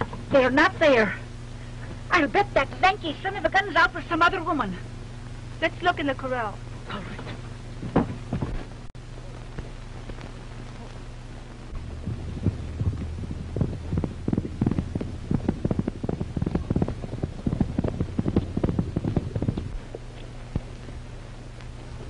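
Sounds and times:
low film soundtrack hum: 0.0s - 22.0s
galloping horse hoofbeats: 11.8s - 21.0s.

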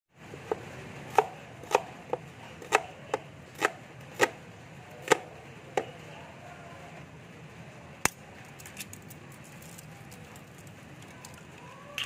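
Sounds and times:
knife chopping onion on board: 0.4s - 4.4s, 5.0s - 5.9s.

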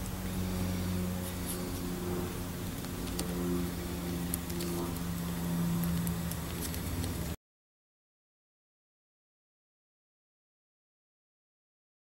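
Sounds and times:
low mechanical hum: 0.0s - 7.4s
wires rustling and clicking: 2.6s - 7.4s.

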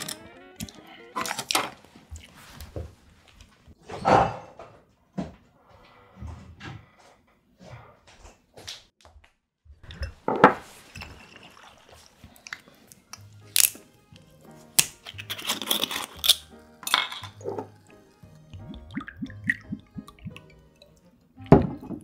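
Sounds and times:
glass clinking: 9.9s - 12.1s
bottle screw cap twisting open: 15.0s - 17.7s.

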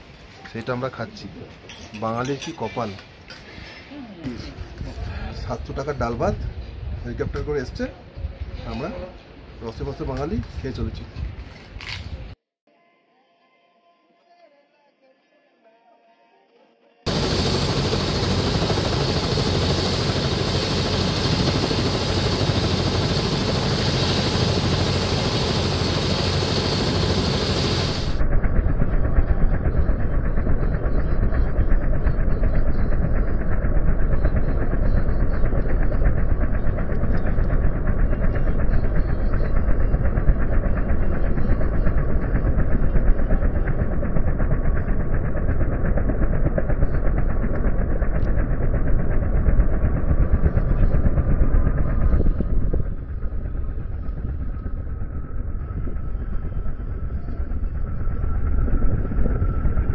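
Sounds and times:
helicopter rotor and engine: 0.2s - 12.1s, 17.1s - 59.9s
thin rising whine: 46.7s - 59.9s.

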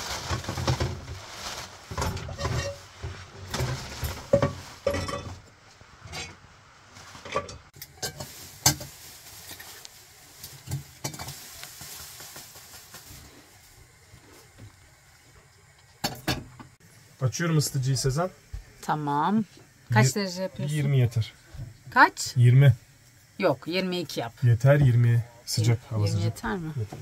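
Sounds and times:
dishes and cutlery clattering: 2.0s - 2.9s, 3.5s - 5.4s.

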